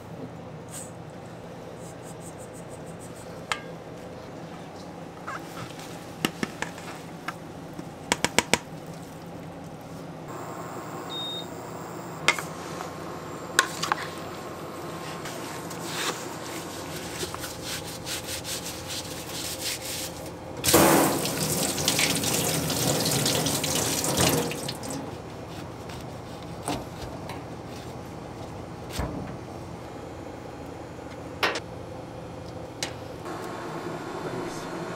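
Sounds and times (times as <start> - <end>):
tap water running into sink: 20.7 - 25.0.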